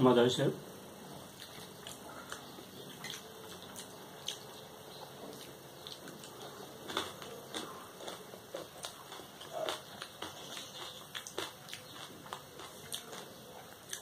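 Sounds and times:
people chewing: 1.1s - 14.0s.

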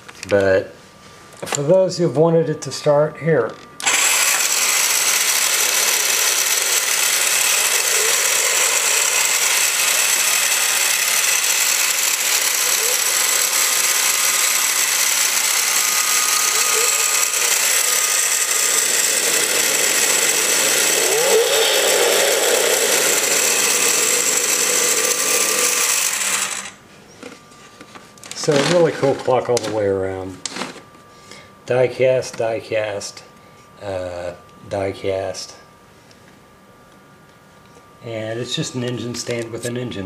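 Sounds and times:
electronic engine sound from speaker: 5.2s - 26.8s.

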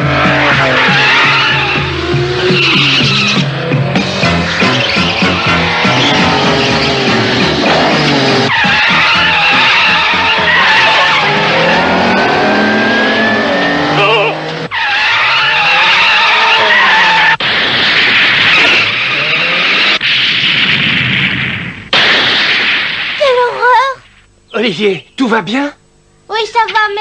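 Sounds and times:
race car engine running hard: 0.0s - 14.7s
tyre squeals: 0.4s - 3.5s, 4.6s - 7.4s, 8.0s - 17.4s.

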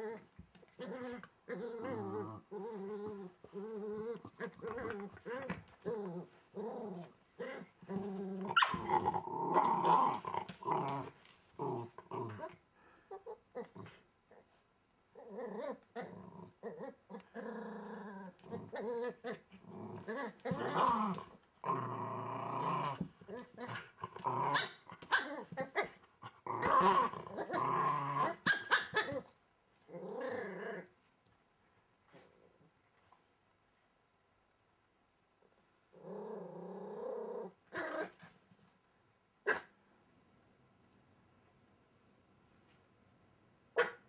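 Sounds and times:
puppy growling in play: 0.0s - 31.1s, 35.9s - 38.4s.

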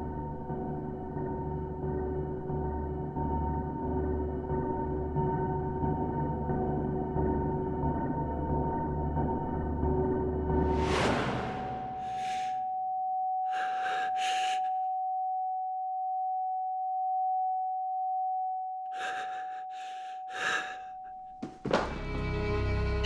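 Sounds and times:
person breathing heavily: 11.7s - 12.6s, 13.5s - 14.8s, 18.9s - 21.2s.

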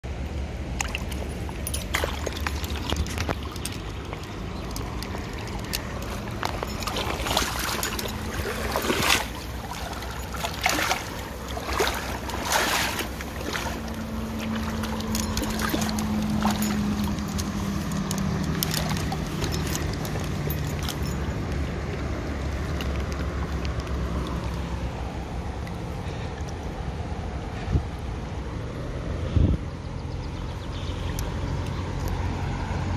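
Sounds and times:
river water running: 0.0s - 32.9s
fish splashing in net: 0.7s - 21.0s.

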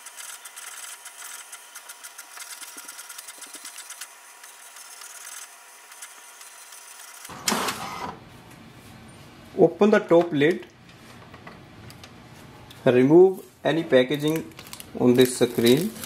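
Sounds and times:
inkjet printer printing: 0.0s - 8.2s.

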